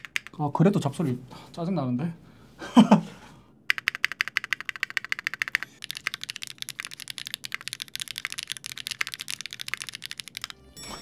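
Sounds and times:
mechanical keyboard typing: 0.0 - 0.4, 3.7 - 10.6.

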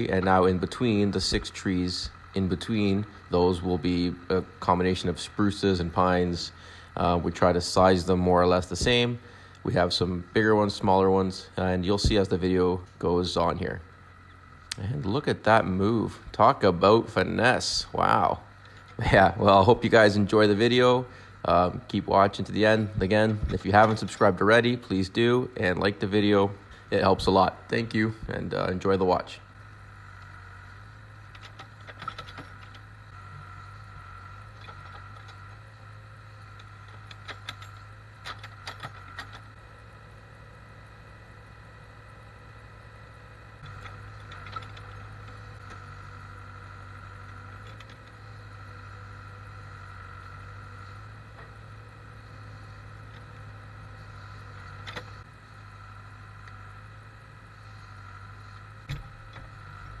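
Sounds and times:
backhoe diesel engine running: 0.0 - 60.0
metallic clanks and rattles: 31.3 - 32.9, 36.6 - 39.5, 43.6 - 45.8.

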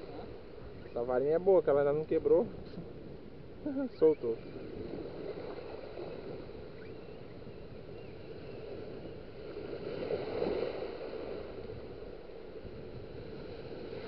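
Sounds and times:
shallow surf washing over sand: 7.5 - 14.0.

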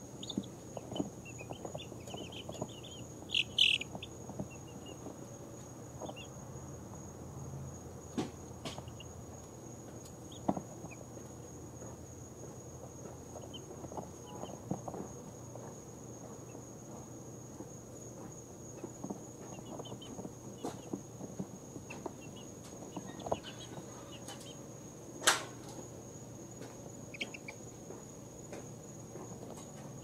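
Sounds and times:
chicks peeping: 0.0 - 6.4, 8.6 - 11.4, 13.0 - 15.6, 18.8 - 24.8, 26.3 - 28.5
soft taps and rustles: 0.2 - 6.2, 8.1 - 24.6.

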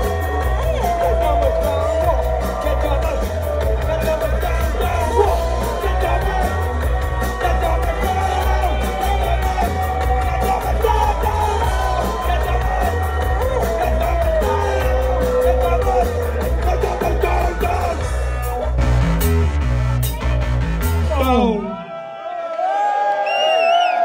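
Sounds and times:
person singing: 0.0 - 18.5
electric guitar: 0.0 - 21.1
drums with cymbal beat: 0.0 - 21.3
live rock band playing: 0.0 - 21.7.

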